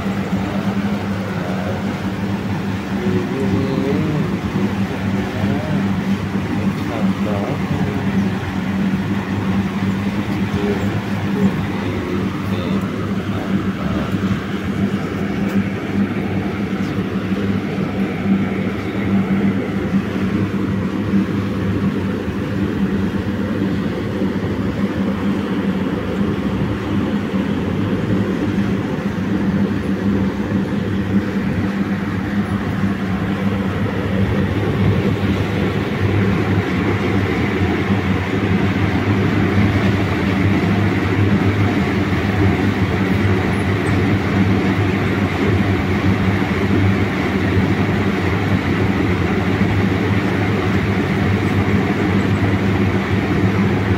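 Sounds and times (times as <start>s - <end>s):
mechanical hum: 0.0s - 53.9s.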